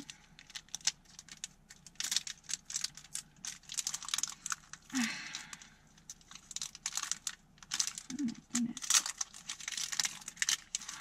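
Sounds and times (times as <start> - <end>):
foil wrapper crinkling: 0.0 - 11.0
wrapper rustling: 0.0 - 11.0.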